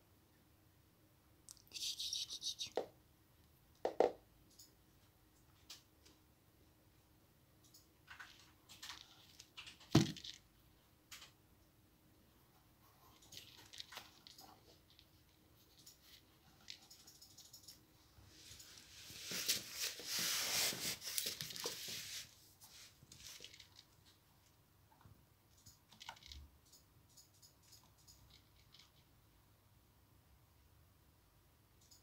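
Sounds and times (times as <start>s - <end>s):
rustling and scratching: 8.0s - 10.5s, 12.6s - 24.2s.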